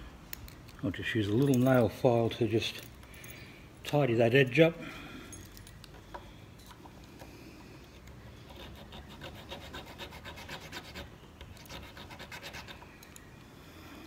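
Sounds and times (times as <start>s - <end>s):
file rasping on wood: 8.5s - 12.8s.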